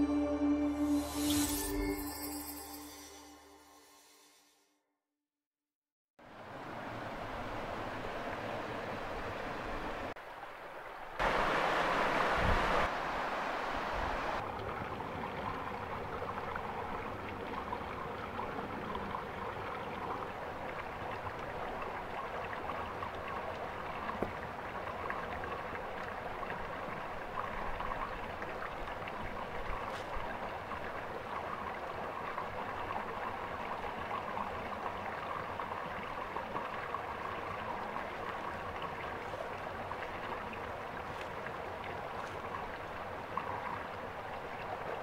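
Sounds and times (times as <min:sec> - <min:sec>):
river water rushing over rocks: 0:11.2 - 0:14.4.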